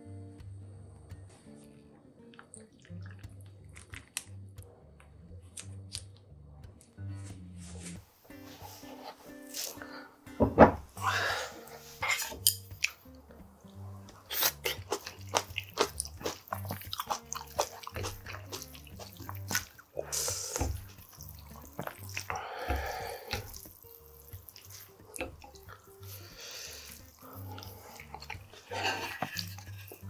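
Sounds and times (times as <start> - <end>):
background music: 0.0 - 30.0
wet noodles squishing: 2.3 - 4.5, 11.6 - 30.0.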